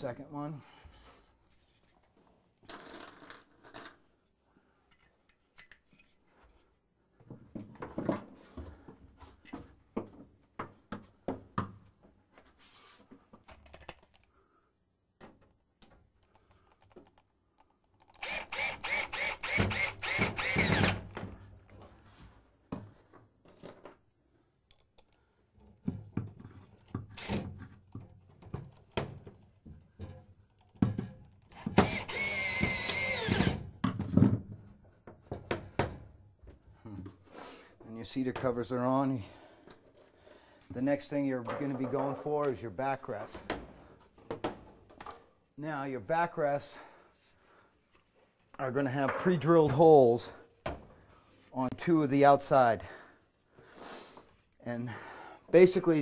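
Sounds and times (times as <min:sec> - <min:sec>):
cordless drill driving screw: 0:18.0 - 0:21.2, 0:27.2 - 0:27.4, 0:31.5 - 0:33.6.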